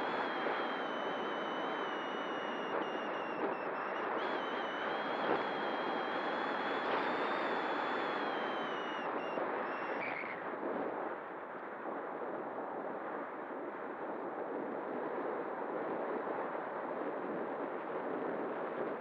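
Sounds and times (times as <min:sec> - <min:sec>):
electric motor and propeller whining: 0:00.0 - 0:10.2
wind noise: 0:00.0 - 0:19.0.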